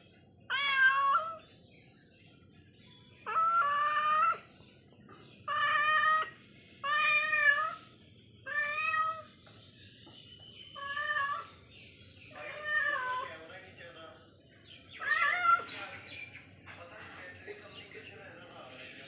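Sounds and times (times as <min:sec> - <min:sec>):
cat meowing: 0:00.5 - 0:01.4, 0:03.2 - 0:04.5, 0:05.4 - 0:09.3, 0:10.8 - 0:11.5, 0:12.3 - 0:13.3, 0:15.0 - 0:15.7.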